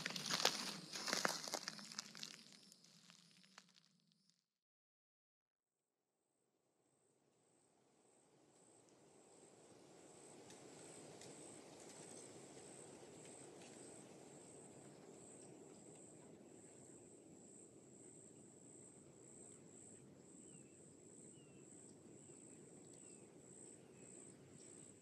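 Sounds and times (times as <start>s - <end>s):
insect trilling: 0.0s - 3.7s.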